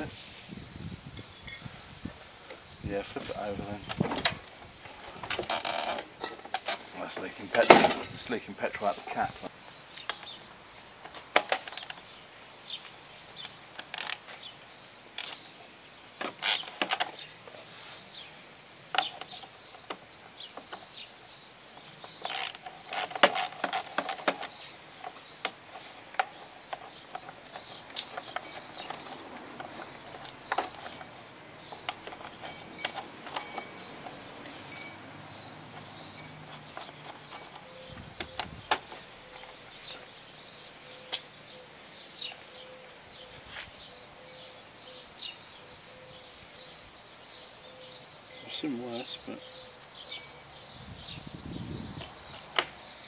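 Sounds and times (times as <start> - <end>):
sharp metal clicks and knocks: 3.8 - 10.4, 21.8 - 39.6.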